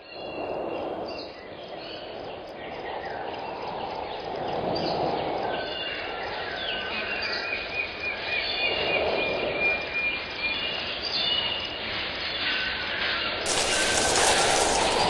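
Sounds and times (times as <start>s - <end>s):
insect chirps: 13.5s - 15.0s
rushing noise: 13.5s - 15.0s.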